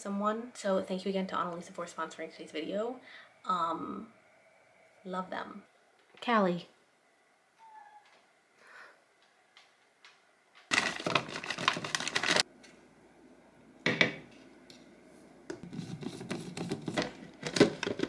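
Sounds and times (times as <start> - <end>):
frozen fruit clattering into cup: 10.7 - 12.4.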